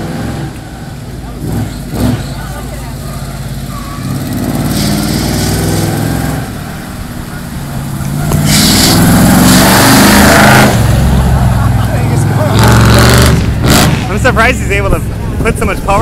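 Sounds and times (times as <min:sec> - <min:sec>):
bus engine revving: 0:00.0 - 0:16.0
rushing noise: 0:04.3 - 0:16.0.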